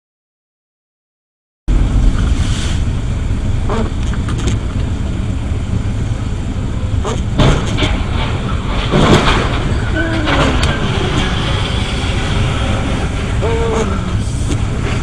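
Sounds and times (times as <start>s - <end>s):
engine and tyres rumbling on wet road: 1.7s - 15.0s.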